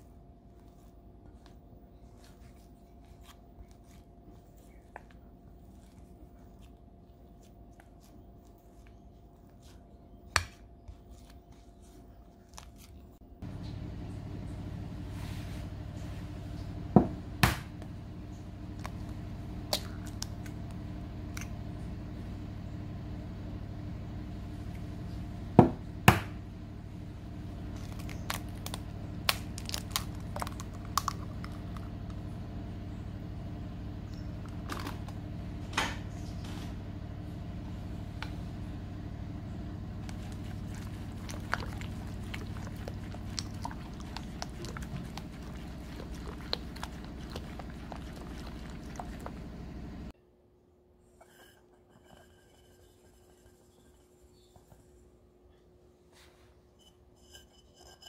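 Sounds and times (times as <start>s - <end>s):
steady low hum: 0.0s - 58.0s
eggs cracking on bowl rim: 27.7s - 32.2s.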